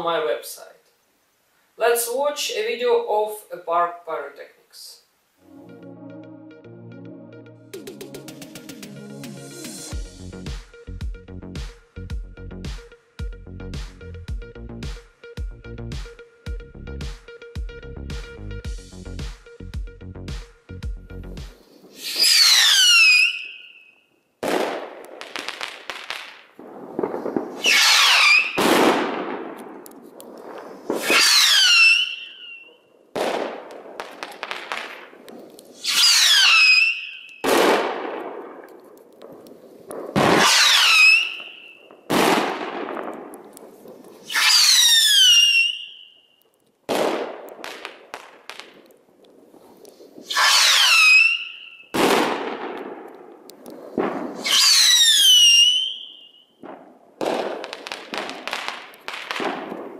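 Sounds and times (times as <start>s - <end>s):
bangs and crackle of bursts: 21.4s - 59.9s
whistling rockets: 21.8s - 29.6s, 30.4s - 35.0s, 35.7s - 38.2s, 40.0s - 43.1s, 43.7s - 48.3s, 50.2s - 52.9s, 53.8s - 59.9s.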